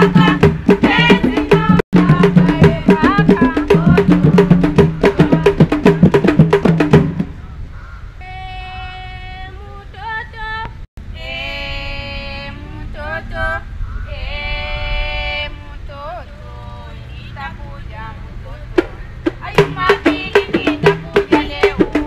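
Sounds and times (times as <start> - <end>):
group singing: 0.0 - 6.4, 11.2 - 17.6, 19.5 - 22.0
hand drums beating: 0.0 - 7.3, 18.8 - 22.0.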